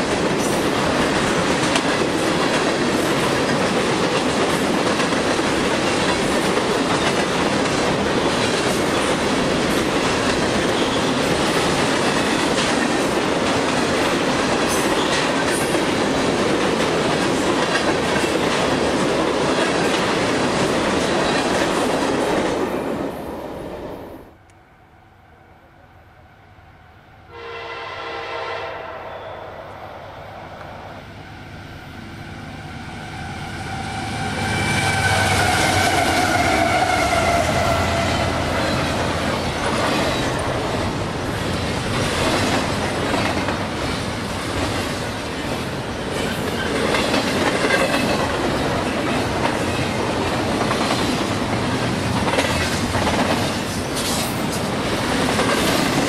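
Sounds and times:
diesel locomotives passing: 0.0s - 56.0s
train horn blast: 27.2s - 29.8s.

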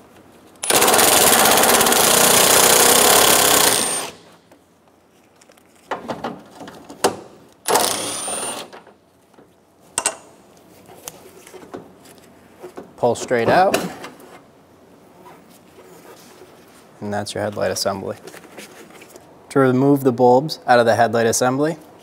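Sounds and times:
cordless impact tool rattling: 0.6s - 4.2s
knocks and clicks of parts handled: 4.5s - 7.4s, 8.7s - 14.4s.

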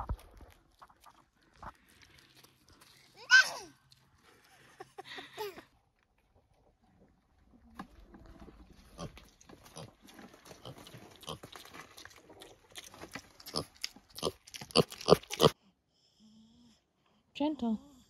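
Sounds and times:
piglet chewing grain: 0.0s - 4.8s, 6.0s - 15.6s
small crunches and clicks: 7.7s - 15.6s.

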